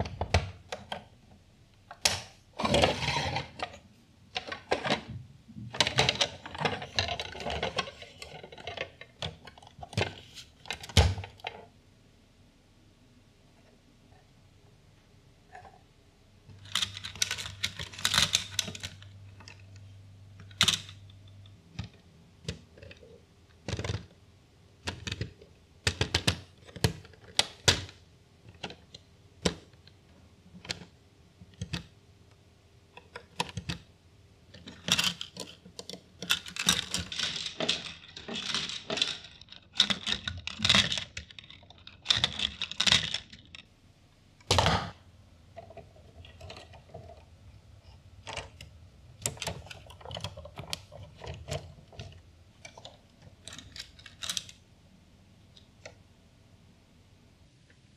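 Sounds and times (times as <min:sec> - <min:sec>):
plastic parts clicking and clattering: 0:00.0 - 0:11.7, 0:16.5 - 0:24.2, 0:24.8 - 0:31.9, 0:32.9 - 0:33.9, 0:34.5 - 0:43.7, 0:44.4 - 0:54.7.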